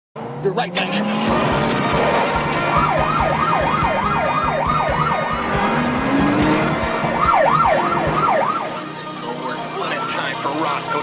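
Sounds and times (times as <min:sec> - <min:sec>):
car engines rumbling: 0:00.2 - 0:11.0
engine revving: 0:00.2 - 0:11.0
police siren yelping: 0:02.2 - 0:08.9.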